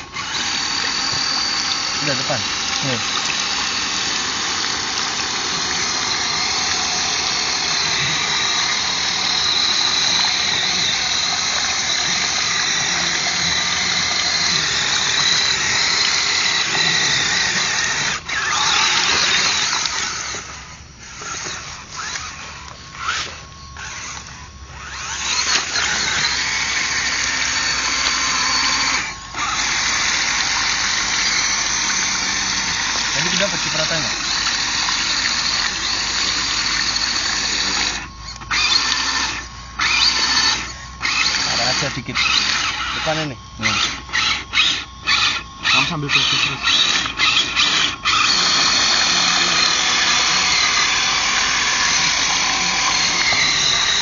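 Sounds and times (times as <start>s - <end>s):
toy truck motor whining: 0.0s - 54.0s.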